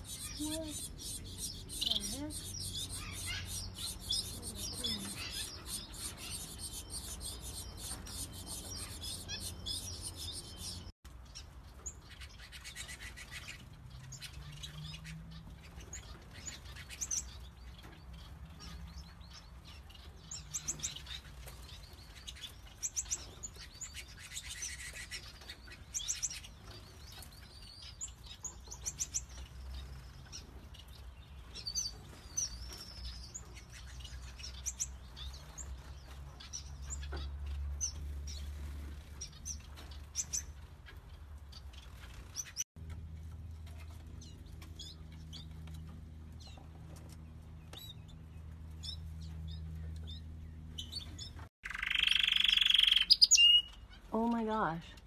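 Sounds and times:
finches chirping: 0.0s - 10.9s.

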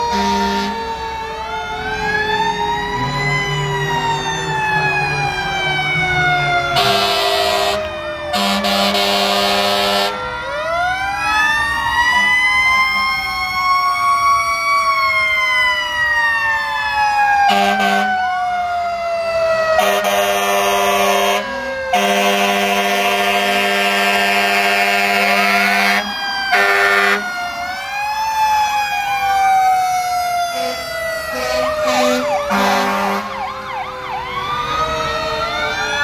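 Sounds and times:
fire truck sirens wailing: 0.0s - 36.0s
long horn blasts: 6.8s - 10.2s, 17.5s - 18.1s, 19.8s - 27.3s, 30.6s - 33.4s.

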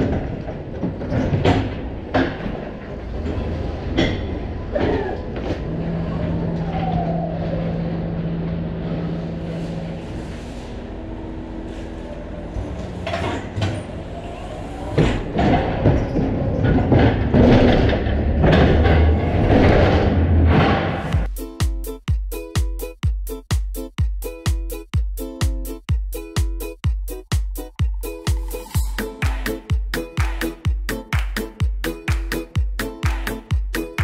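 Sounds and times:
clattering knocks and rattles: 0.0s - 5.8s, 15.0s - 21.3s
lorry engine rumbling: 0.0s - 21.3s.

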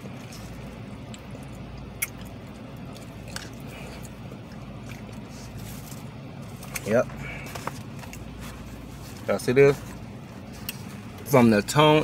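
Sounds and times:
man chewing: 0.0s - 9.2s
low hum inside car: 0.0s - 12.0s.

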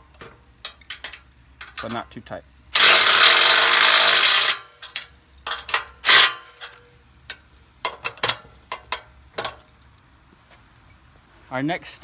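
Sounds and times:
metal clicks and clinks: 0.1s - 2.1s, 2.8s - 10.1s
impact driver hammering: 2.8s - 4.7s.

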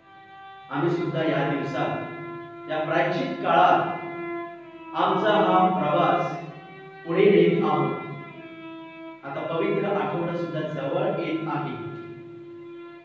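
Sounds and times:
violin holding long notes: 0.0s - 13.0s
man chanting a prayer: 0.7s - 4.0s, 5.0s - 6.4s, 7.1s - 8.0s, 9.2s - 12.0s.

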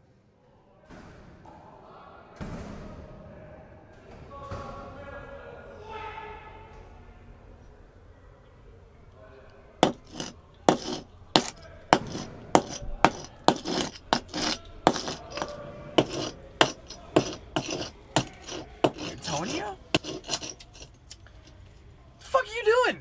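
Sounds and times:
metal tool scraping concrete: 9.8s - 21.0s.

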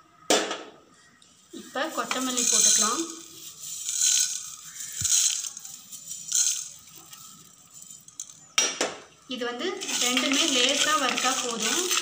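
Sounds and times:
seeds rattling onto a pan: 1.6s - 8.5s, 9.7s - 12.0s.

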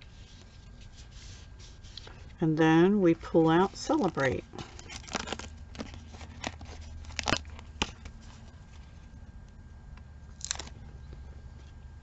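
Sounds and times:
paper crackles and ticks: 3.3s - 8.5s
paper rustling: 3.3s - 9.1s.

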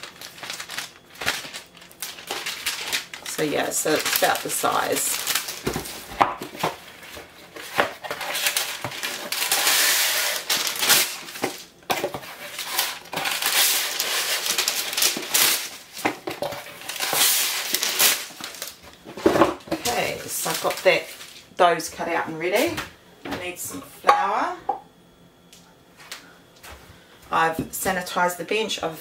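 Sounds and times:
baking paper rustling and crinkling: 0.0s - 22.8s.

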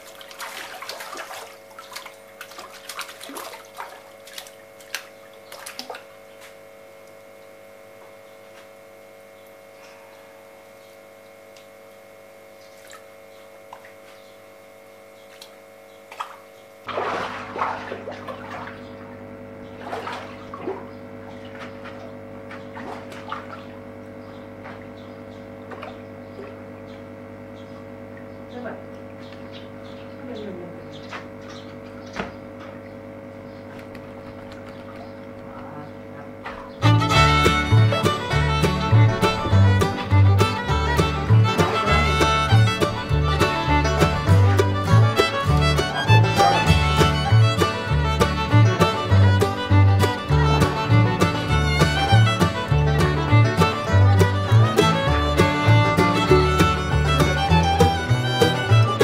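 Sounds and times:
fish splashing in water: 0.0s - 6.6s, 12.7s - 14.1s, 15.3s - 26.9s, 31.1s - 36.8s
steady background hum: 0.0s - 59.0s.

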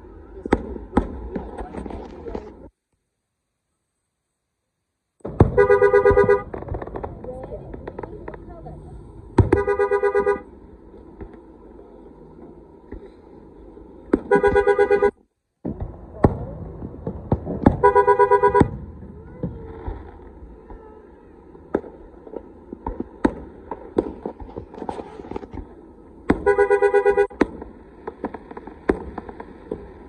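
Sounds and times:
firework bangs and crackles: 0.0s - 2.8s, 5.2s - 30.0s
car horns honking: 5.5s - 6.6s, 9.4s - 10.5s, 14.3s - 15.2s, 17.8s - 18.8s, 26.4s - 27.4s.

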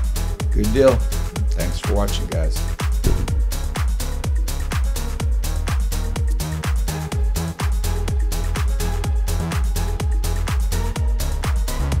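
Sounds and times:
bass line: 2.9s - 4.2s
steady kick drum: 2.9s - 4.4s.

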